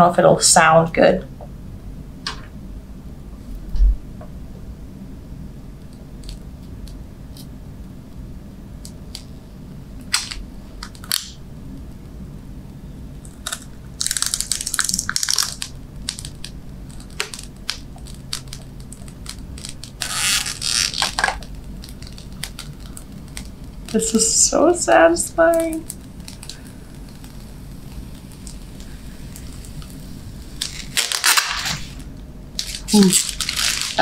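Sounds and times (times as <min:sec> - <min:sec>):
plastic film peeling and crackling: 0:05.8 - 0:07.5, 0:08.8 - 0:09.4, 0:10.0 - 0:11.4, 0:13.2 - 0:34.0
crinkling plastic: 0:10.0 - 0:11.4, 0:13.2 - 0:34.0.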